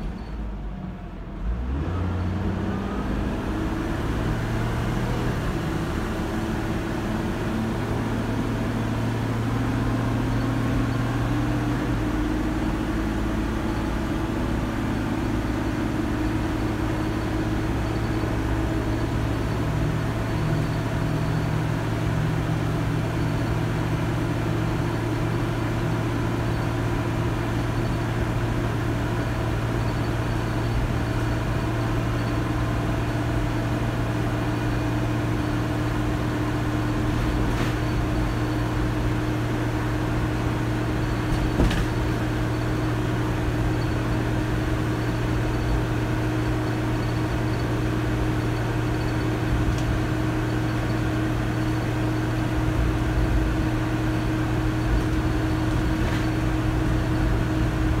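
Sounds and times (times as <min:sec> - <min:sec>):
bus engine drone with whine: 0:00.0 - 0:58.0
click: 0:49.7 - 0:49.9.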